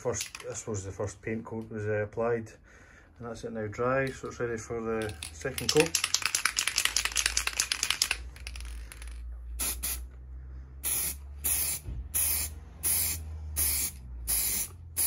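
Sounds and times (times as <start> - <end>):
mixing ball rattling in can: 5.1 - 9.2
spray can hissing bursts: 6.1 - 10.1, 10.8 - 15.0.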